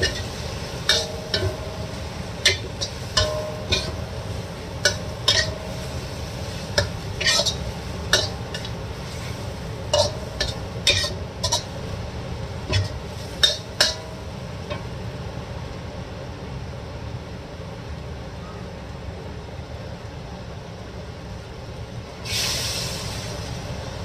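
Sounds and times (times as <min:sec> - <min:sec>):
metal spatula scraping a wok: 0:00.0 - 0:11.9, 0:12.7 - 0:14.8.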